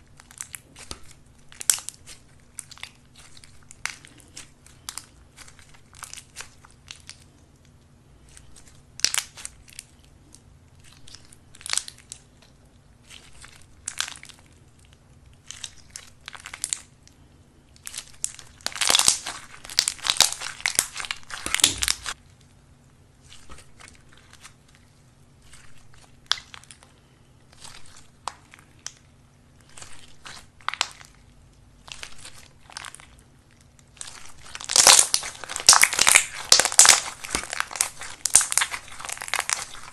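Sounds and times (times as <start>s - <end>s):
slime crackling and squishing: 0.0s - 39.9s.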